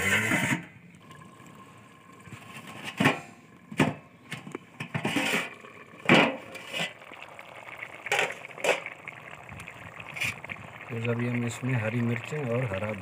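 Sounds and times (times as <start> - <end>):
rice boiling in a pot: 0.0 - 13.0.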